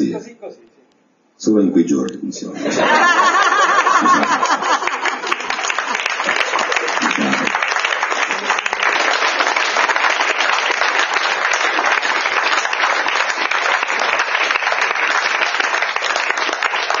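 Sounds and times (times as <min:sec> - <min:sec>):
audience applauding: 0:02.8 - 0:17.0.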